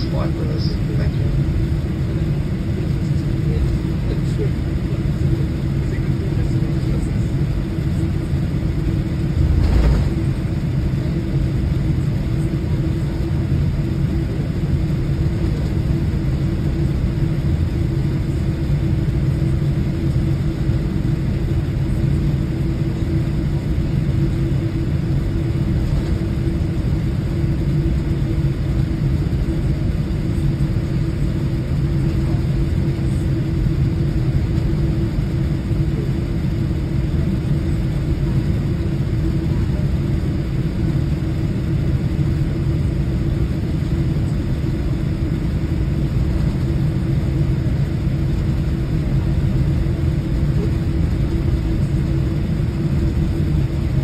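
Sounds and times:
droning hum: 0.0 - 54.0
jet cabin engine rumble: 0.0 - 54.0.

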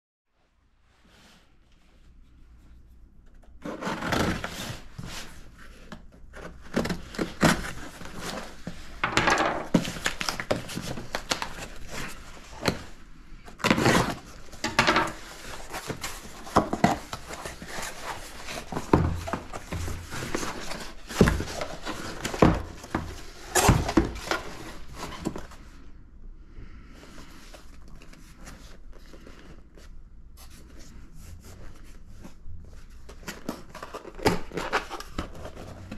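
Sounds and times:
cardboard tearing: 3.6 - 5.2, 13.6 - 14.4.

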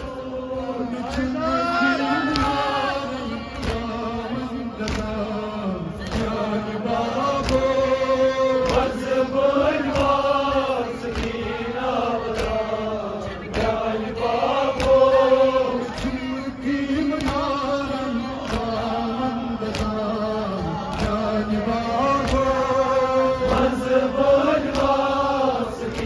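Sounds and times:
man chanting through loudspeaker: 0.0 - 11.8, 15.1 - 24.1.

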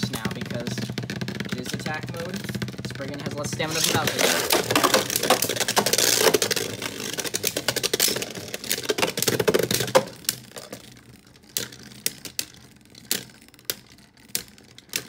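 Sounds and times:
spinning tops clattering: 0.0 - 15.0.

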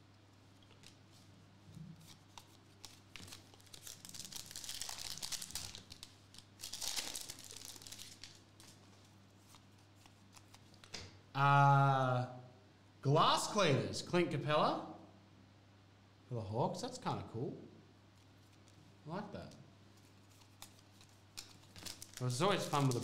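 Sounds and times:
foil wrapper tearing and crinkling: 2.0 - 8.8, 20.3 - 23.0.

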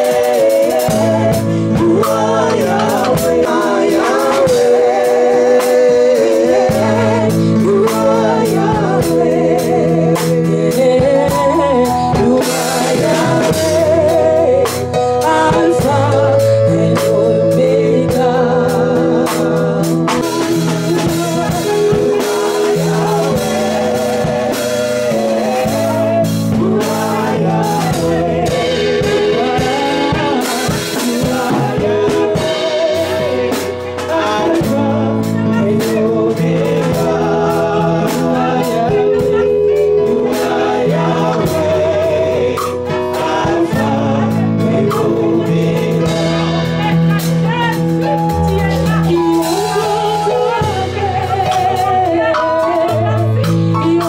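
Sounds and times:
bass: 0.0 - 54.0
drum kit: 0.0 - 54.0
person singing with vibrato: 0.0 - 54.0.

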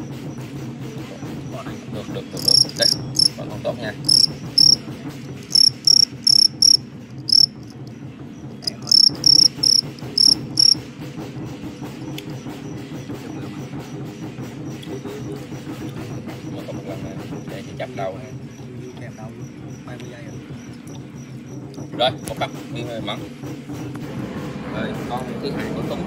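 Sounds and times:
steady low hum: 2.2 - 7.8
crickets chirping: 2.4 - 4.8, 5.4 - 7.8, 8.6 - 10.8.

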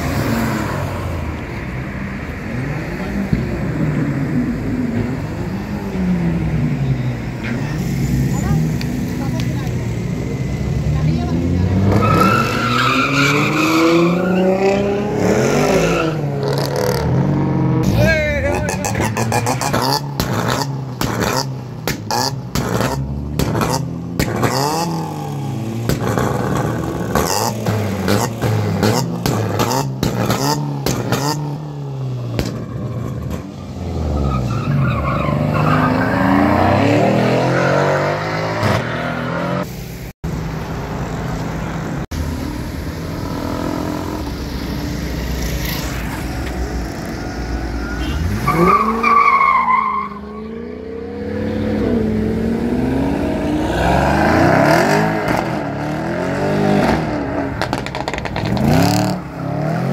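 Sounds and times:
car engines revving: 0.0 - 59.9
exhaust pops and bangs: 19.3 - 24.7, 25.8 - 31.4, 32.3 - 33.4, 57.6 - 58.8.

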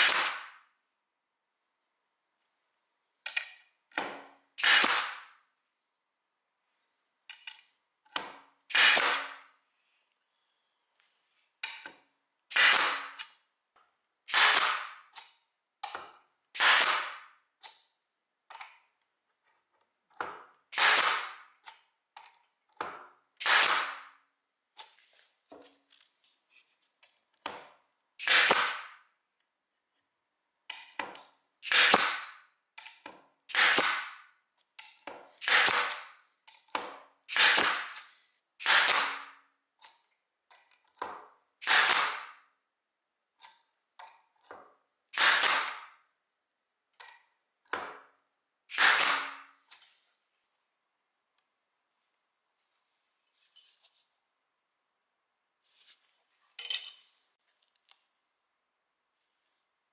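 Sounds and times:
pneumatic stapler firing: 0.0 - 0.6, 3.3 - 5.3, 8.7 - 9.4, 12.5 - 13.4, 14.3 - 15.2, 16.5 - 17.3, 20.7 - 21.4, 23.4 - 24.1, 28.2 - 29.0, 31.6 - 32.4, 33.5 - 34.2, 35.4 - 36.2, 37.3 - 39.4, 41.6 - 42.4, 45.1 - 46.0, 48.7 - 49.5.

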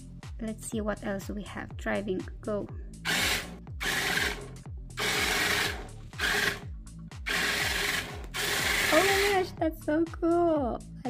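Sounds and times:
toy robot motors whirring: 3.1 - 6.6, 7.3 - 9.5.

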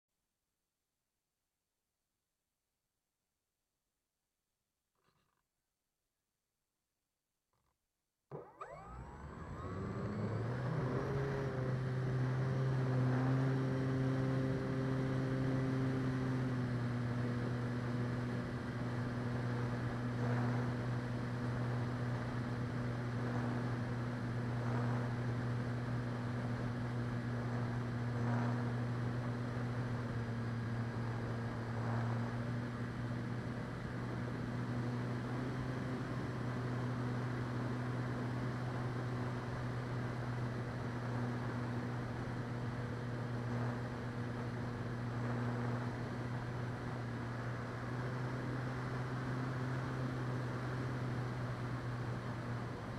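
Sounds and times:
model plane electric motor: 8.3 - 14.0, 19.0 - 30.0.

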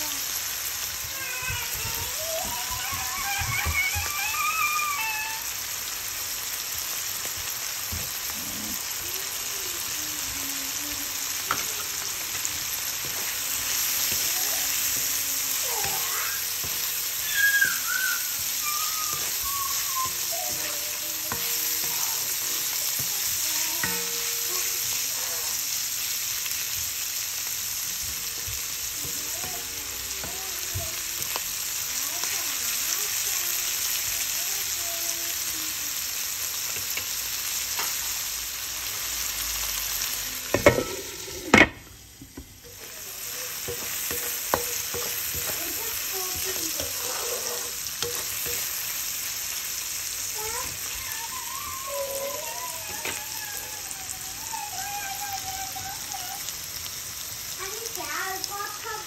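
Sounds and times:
oil sizzling in a wok: 0.0 - 59.0
wooden spatula scraping pan: 42.7 - 48.8.

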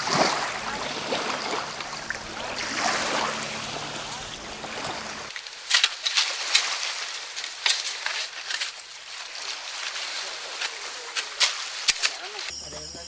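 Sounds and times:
shovels scraping into gravel: 5.3 - 8.9.

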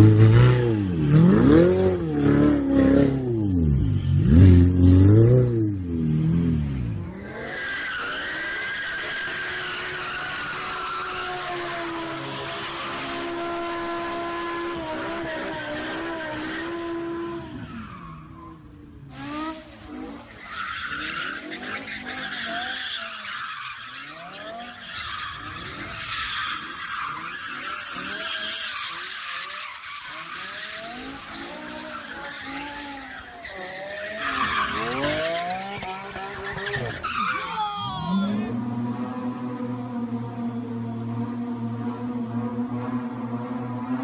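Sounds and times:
car engines revving: 0.0 - 44.0
tyres screeching: 20.2 - 38.5.

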